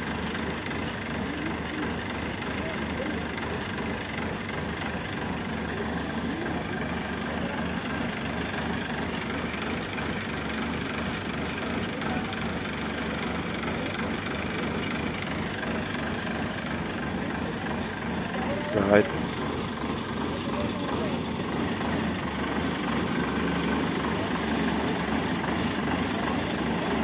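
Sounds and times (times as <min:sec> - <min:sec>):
combine harvester engine humming: 0:00.0 - 0:27.0.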